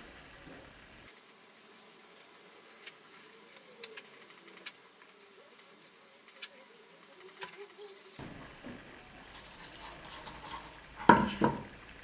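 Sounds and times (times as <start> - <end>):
faint wavering buzz: 0.0 - 12.0
brush on wood: 1.1 - 8.2, 9.2 - 11.6.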